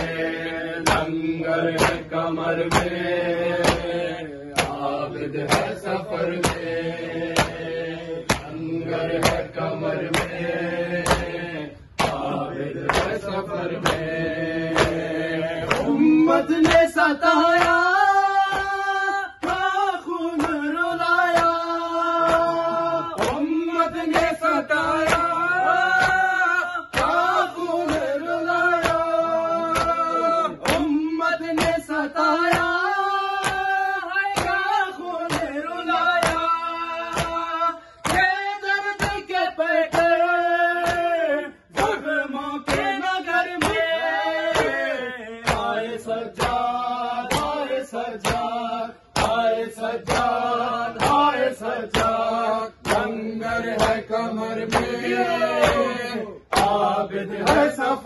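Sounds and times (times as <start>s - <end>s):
hands slapping chests: 0.0s - 58.0s
men chanting in unison: 0.0s - 58.0s.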